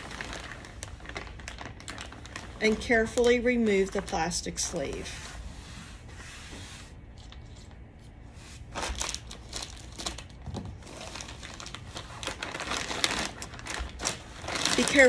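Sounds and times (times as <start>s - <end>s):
plastic sleeve crinkling: 0.0s - 5.5s, 8.6s - 15.0s.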